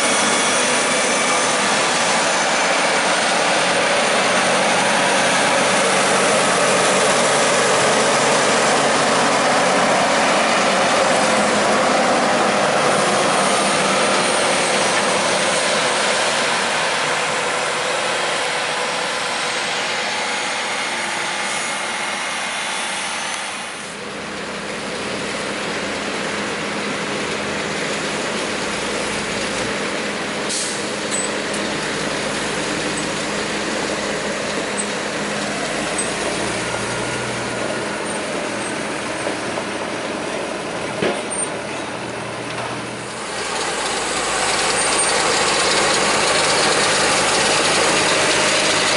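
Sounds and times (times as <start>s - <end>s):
tractor engine pulling wagon: 0.0s - 23.2s, 23.8s - 48.9s
diesel tractor engines working hard: 0.0s - 48.9s.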